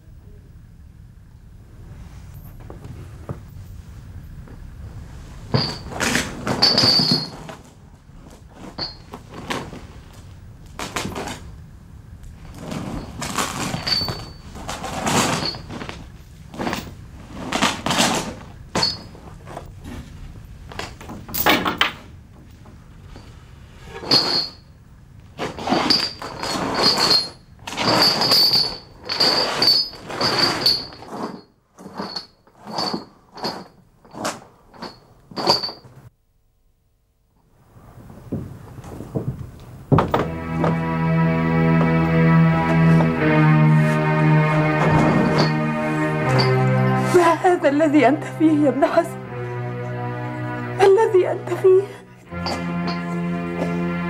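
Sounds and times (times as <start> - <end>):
iron chains clanking and rattling: 5.5 - 7.7, 8.6 - 9.5, 12.4 - 16.0, 18.8 - 19.3, 20.9 - 22.1, 23.1 - 24.7, 25.5 - 36.0, 44.7 - 47.1, 52.3 - 53.3.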